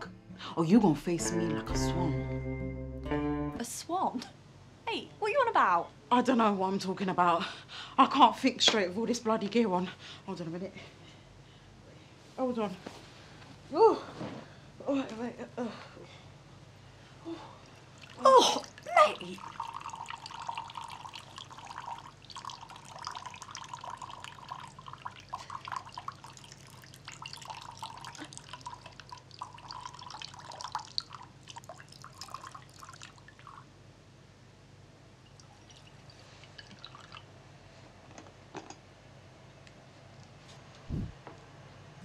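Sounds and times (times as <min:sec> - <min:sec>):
coffee pouring into mug: 0:17.9 - 0:33.6, 0:35.3 - 0:37.3.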